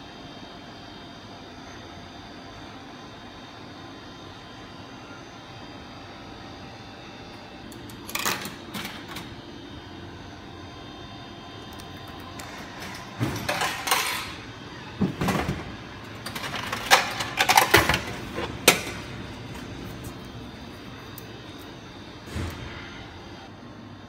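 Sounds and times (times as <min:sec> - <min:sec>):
steady background hum: 0:00.0 - 0:24.0
vending machine dispensing carton: 0:07.3 - 0:10.6, 0:11.3 - 0:23.4.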